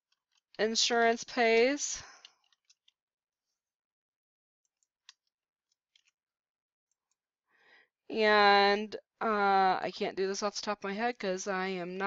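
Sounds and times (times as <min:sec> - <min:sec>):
keyboard and mouse clicks: 0:04.7 - 0:06.2.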